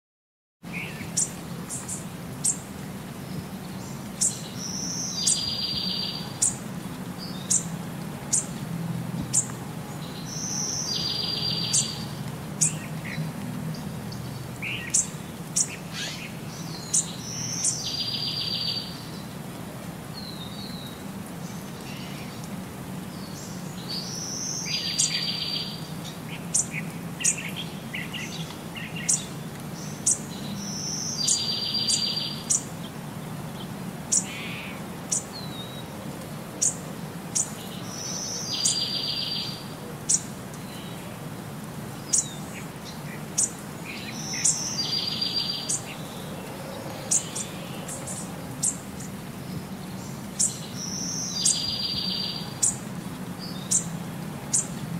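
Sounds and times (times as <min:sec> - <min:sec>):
small birds chirping: 0:00.6 - 0:08.6, 0:09.2 - 0:54.9.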